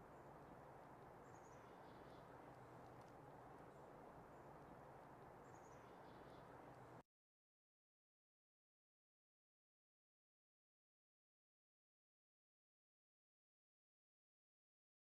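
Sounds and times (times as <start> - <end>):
faint outdoor ambience: 0.0 - 7.0
faint high bird chirps: 5.4 - 6.5.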